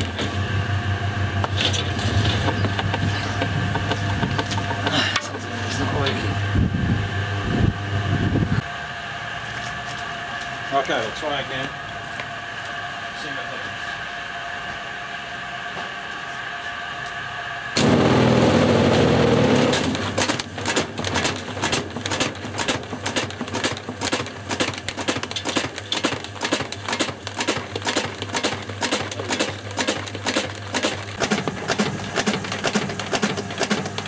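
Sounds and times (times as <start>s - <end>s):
mechanical whine: 0.0s - 34.0s
motor surging on: 17.8s - 22.8s
objects clattering in a drum: 19.7s - 34.0s.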